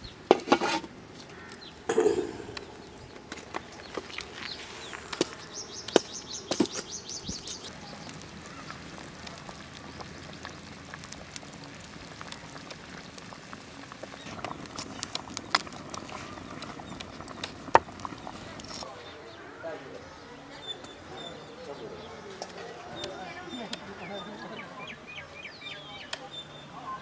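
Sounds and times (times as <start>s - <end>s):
wood fire crackling: 0.0s - 18.9s
bird chirping: 1.5s - 8.8s.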